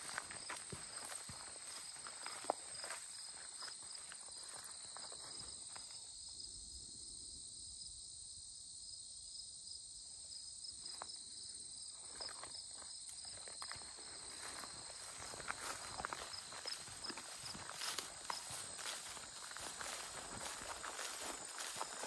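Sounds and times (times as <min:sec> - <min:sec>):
footsteps through grass: 0:00.0 - 0:05.9, 0:12.0 - 0:22.0
crickets trilling: 0:00.0 - 0:22.0.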